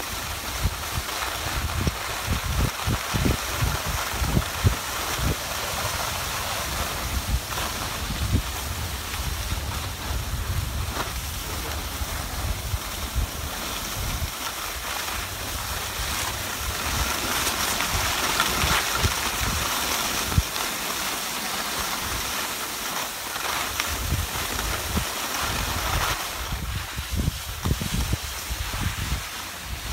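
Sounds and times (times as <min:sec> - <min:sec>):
skis sliding on snow: 0:00.0 - 0:29.9
wind buffeting microphone: 0:00.5 - 0:14.4, 0:23.9 - 0:29.9.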